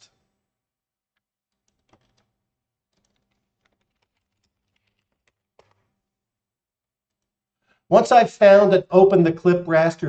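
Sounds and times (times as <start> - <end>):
faint keyboard typing: 1.1 - 6.1, 7.0 - 7.8.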